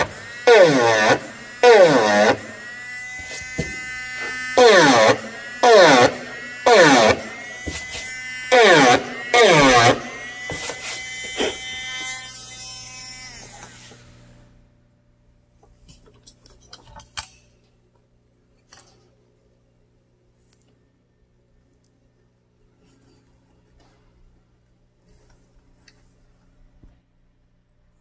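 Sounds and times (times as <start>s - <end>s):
rotary engraving tool whining: 0.0s - 14.2s.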